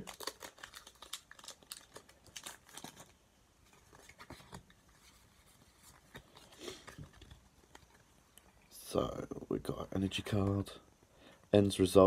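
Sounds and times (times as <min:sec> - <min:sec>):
foil pack and cards rustling: 0:00.0 - 0:08.0.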